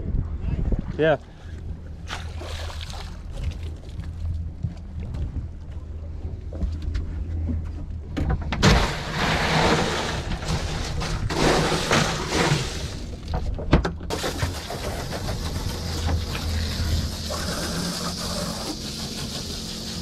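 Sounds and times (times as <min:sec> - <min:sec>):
steady low hum: 0:00.0 - 0:20.0
ice and water sloshing: 0:01.2 - 0:05.2, 0:08.6 - 0:20.0.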